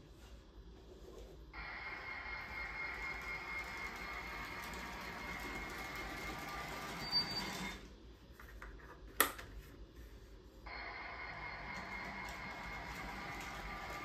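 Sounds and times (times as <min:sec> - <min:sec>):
model train motor whine: 0:01.6 - 0:07.8, 0:10.7 - 0:14.0.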